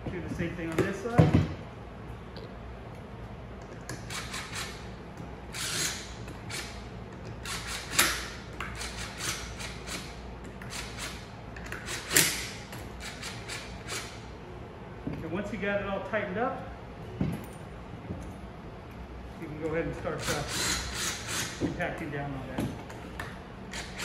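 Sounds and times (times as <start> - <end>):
impact driver bursts: 4.0 - 4.8, 7.4 - 14.2, 20.2 - 21.6.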